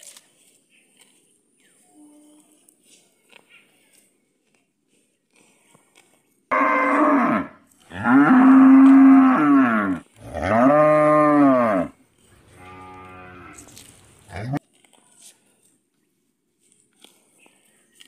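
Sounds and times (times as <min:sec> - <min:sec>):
cow mooing: 0:06.5 - 0:13.7.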